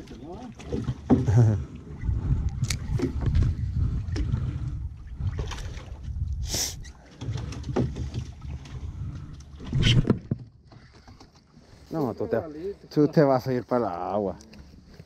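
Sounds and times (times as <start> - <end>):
wind rumbling on microphone: 0.8 - 10.5.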